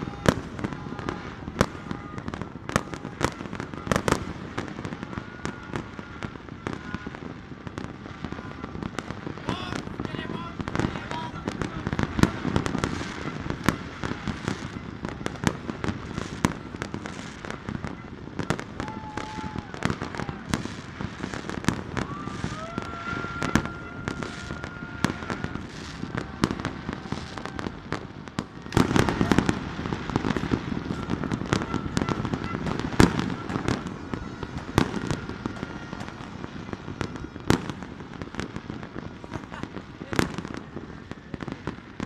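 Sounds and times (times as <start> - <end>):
fireworks bangs and crackling pops: 0.0 - 42.0.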